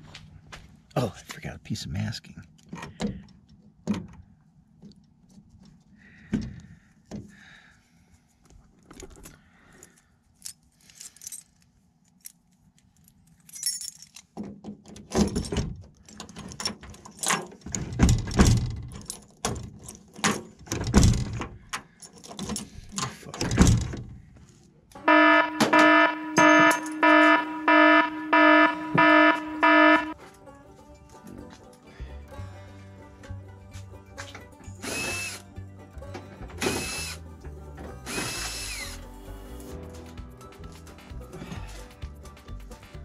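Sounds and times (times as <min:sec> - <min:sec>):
keys jangling: 0:09.7 - 0:12.4, 0:13.0 - 0:14.3.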